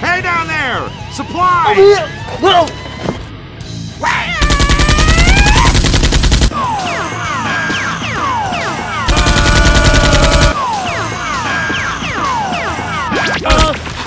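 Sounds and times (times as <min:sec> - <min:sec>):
background music: 0:00.0 - 0:14.0
machine-gun bursts: 0:04.4 - 0:06.5, 0:09.1 - 0:10.6.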